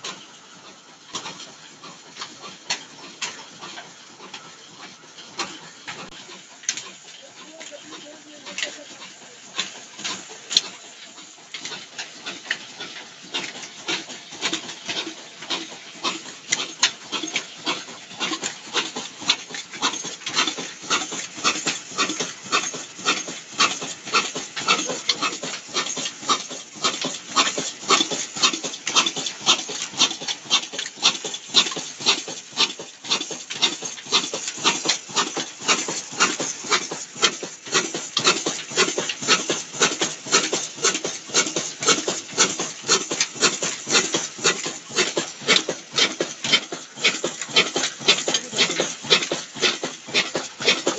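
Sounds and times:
diesel engine clattering: 0.0s - 50.9s.

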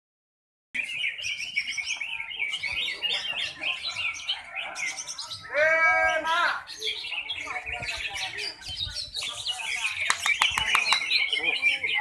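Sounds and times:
birds chirping and warbling: 0.8s - 12.0s.

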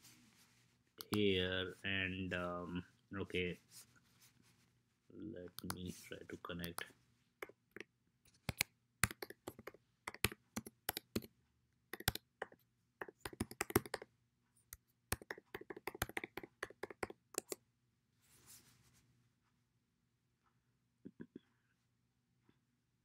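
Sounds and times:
computer keyboard typing: 6.6s - 11.3s, 11.9s - 14.1s, 15.1s - 17.6s.

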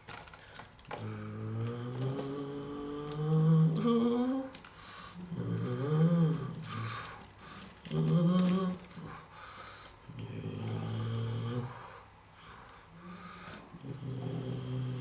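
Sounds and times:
person humming vehicle noises: 1.0s - 4.6s.

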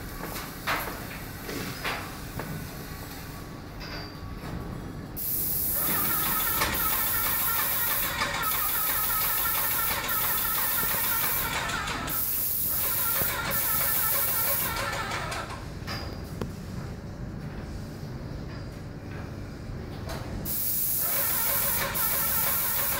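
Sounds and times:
paint sprayer hissing: 5.2s - 15.5s, 20.5s - 22.9s.

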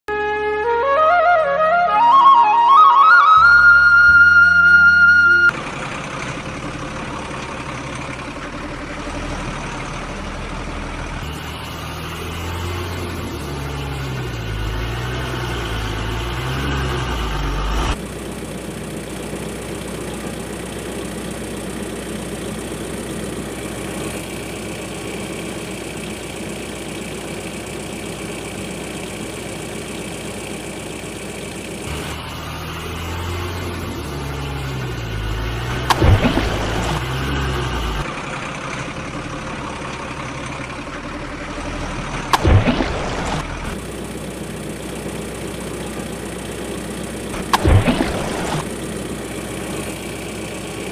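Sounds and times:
truck engine revving: 0.6s - 18.0s, 23.5s - 44.2s, 47.1s - 50.9s.

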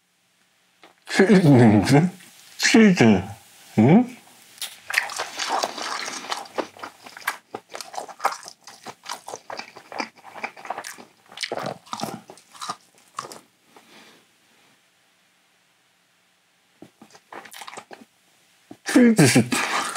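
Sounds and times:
crunchy chewing: 4.6s - 13.9s, 16.8s - 18.1s, 19.6s - 19.9s.

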